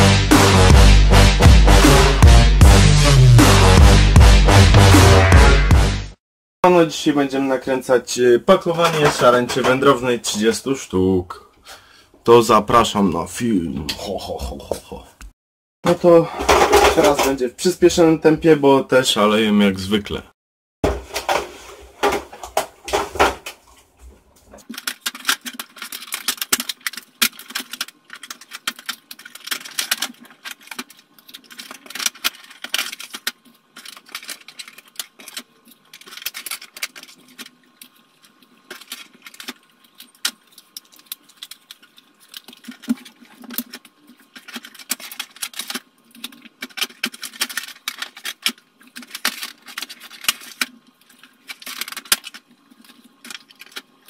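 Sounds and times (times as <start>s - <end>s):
plastic and cardboard clicking and rustling: 16.4s - 17.4s, 20.8s - 54.0s.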